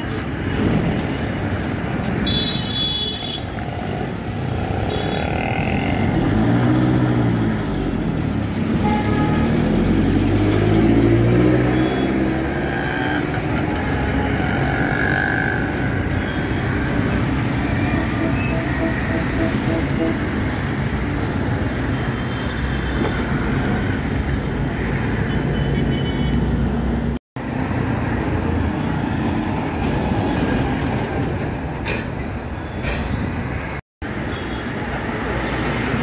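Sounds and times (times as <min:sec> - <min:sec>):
motorbikes: 0:00.0 - 0:25.9
street traffic: 0:00.0 - 0:36.0.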